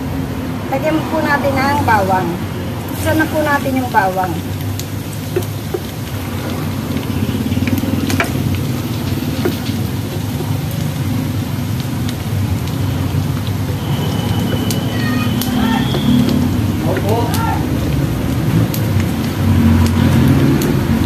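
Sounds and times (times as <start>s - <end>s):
garlic sizzling in hot oil: 0.0s - 21.0s
spatula tapping a pan: 5.2s - 10.8s.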